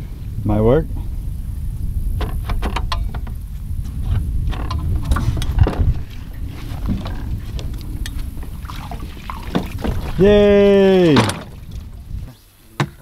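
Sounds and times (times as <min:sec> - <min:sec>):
low rumble: 0:00.0 - 0:12.4
motor mount clicks and rattles: 0:04.4 - 0:05.9.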